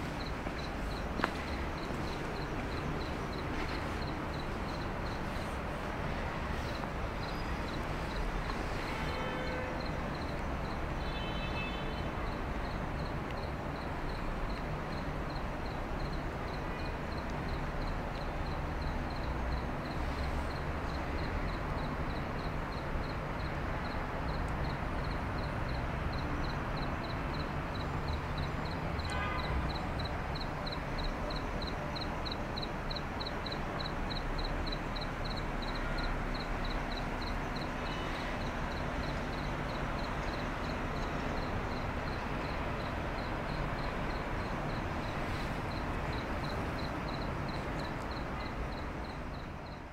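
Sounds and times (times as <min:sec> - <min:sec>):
cricket chirping: 0:00.0 - 0:49.9.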